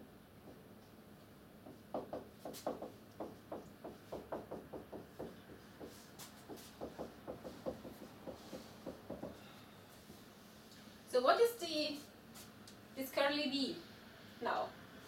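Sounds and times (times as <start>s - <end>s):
marker writing on whiteboard: 2.4s - 9.4s.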